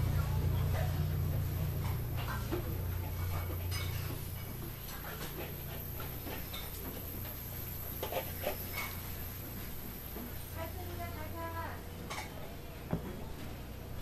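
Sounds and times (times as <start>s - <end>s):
low rumble: 0.0s - 4.6s.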